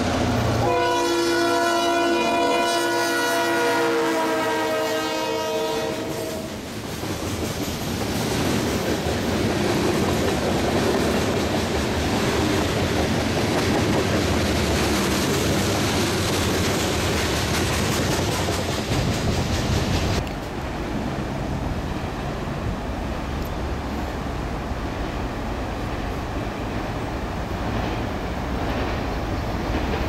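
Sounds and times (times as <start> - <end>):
locomotive horn chord: 0.6 - 6.5.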